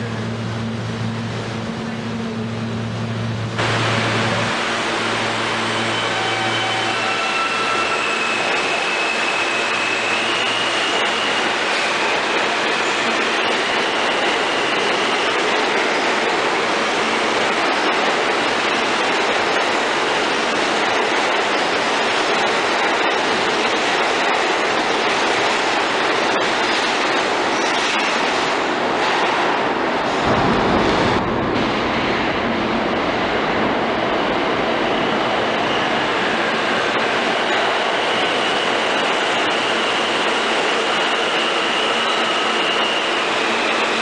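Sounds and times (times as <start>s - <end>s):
heavy low rumble: 0.0s - 5.8s, 30.0s - 36.9s
subway train rumbling and rattling: 0.0s - 44.0s.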